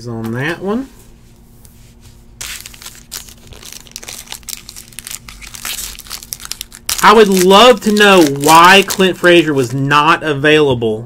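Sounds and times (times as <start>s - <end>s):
foil wrapper crinkling and tearing: 2.4s - 9.5s.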